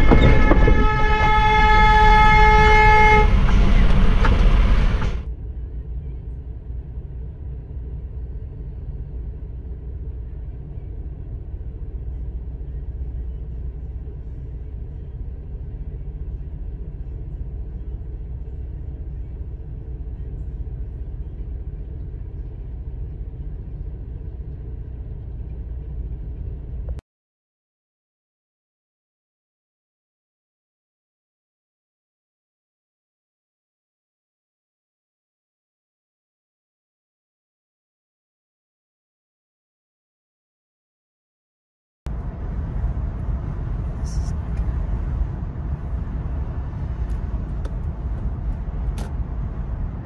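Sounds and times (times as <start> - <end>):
road noise: 0.0 - 27.0, 42.1 - 50.0
truck engine rumble: 0.0 - 27.0, 42.1 - 50.0.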